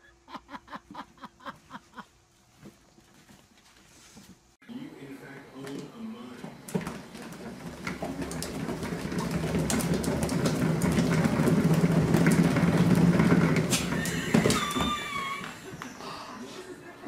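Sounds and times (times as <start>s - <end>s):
cat exercise wheel rumbling: 5.5s - 16.2s.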